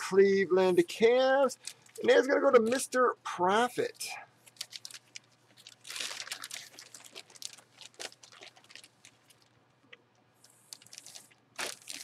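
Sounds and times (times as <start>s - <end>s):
plastic wrap crinkling: 4.4s - 9.6s, 10.4s - 12.0s.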